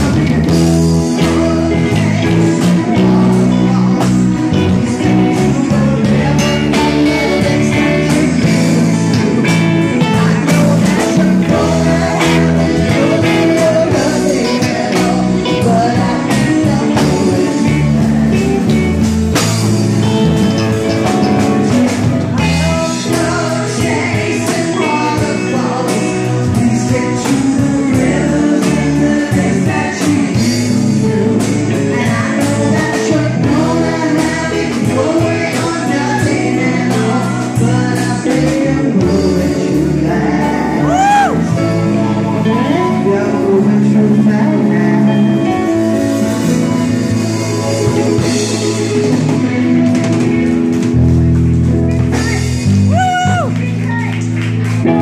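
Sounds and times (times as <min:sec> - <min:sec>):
women singing lead: 0:00.0 - 0:19.0, 0:21.6 - 0:45.6
live band playing: 0:00.0 - 0:55.0.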